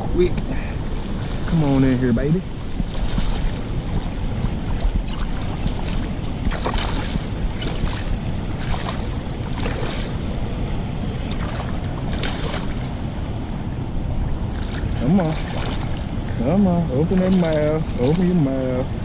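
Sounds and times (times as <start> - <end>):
river current rushing: 0.0 - 19.0
wind on microphone: 0.0 - 19.0
fish splashing at water surface: 4.7 - 10.2, 11.2 - 13.0.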